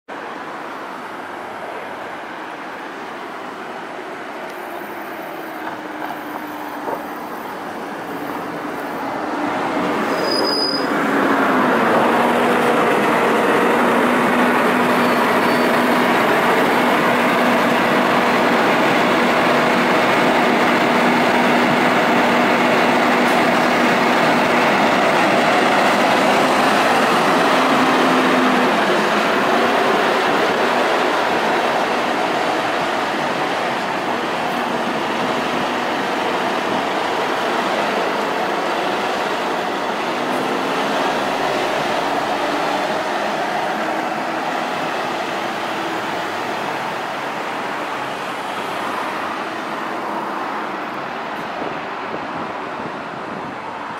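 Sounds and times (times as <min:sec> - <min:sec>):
bus engine: 0:00.1 - 0:53.9
brake squeal: 0:10.0 - 0:11.0, 0:14.9 - 0:15.9.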